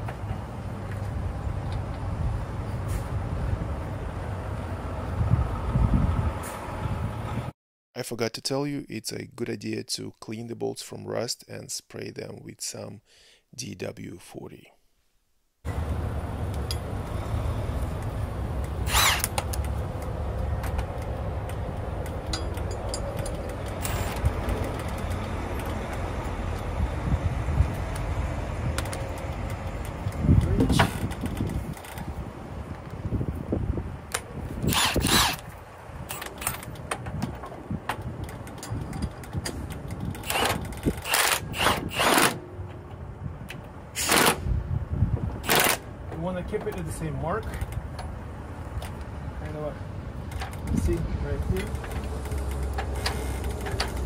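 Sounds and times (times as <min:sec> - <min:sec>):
impact wrench bursts: 0:18.8 - 0:19.7, 0:22.3 - 0:24.9, 0:34.6 - 0:35.5, 0:40.0 - 0:42.4, 0:44.0 - 0:44.4, 0:45.4 - 0:45.9.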